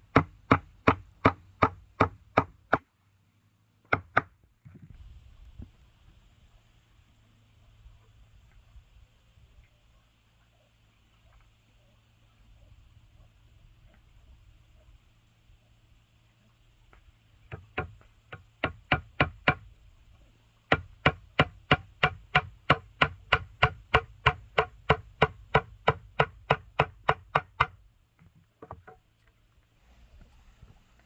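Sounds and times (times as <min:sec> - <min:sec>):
sharp rhythmic knocks: 0:00.1 - 0:02.8, 0:17.5 - 0:19.6, 0:20.7 - 0:27.8.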